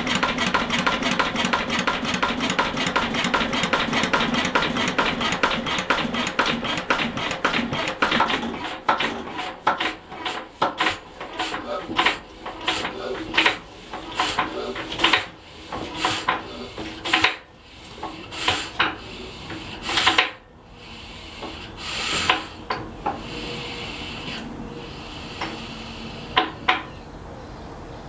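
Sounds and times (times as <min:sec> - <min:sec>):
diesel engine puffing: 0:00.0 - 0:27.2.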